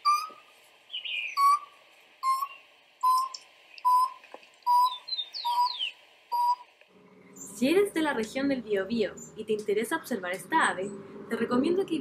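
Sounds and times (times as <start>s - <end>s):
bird giving hollow hoots: 1.0s - 6.6s.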